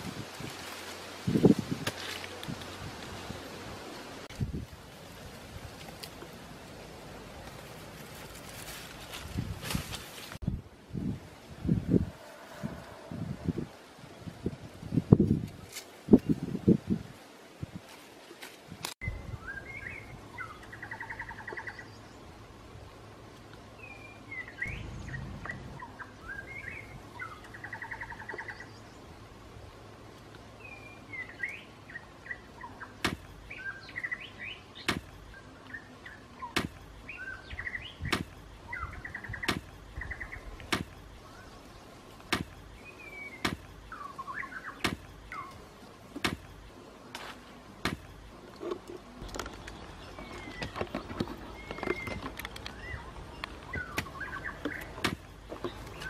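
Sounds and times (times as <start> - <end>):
birds chirping and trilling: 19.0 - 22.5, 23.7 - 29.4, 30.5 - 56.0.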